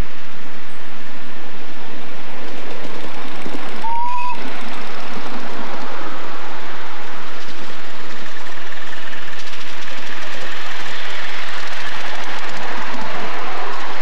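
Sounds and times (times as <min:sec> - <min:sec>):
steam whistle toot: 0:03.8 - 0:04.4.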